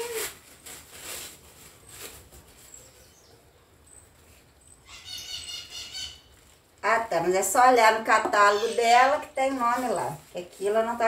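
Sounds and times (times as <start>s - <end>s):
paper wrapping rustling: 0.0s - 3.3s, 8.6s - 11.0s
bird chirping: 2.6s - 6.3s.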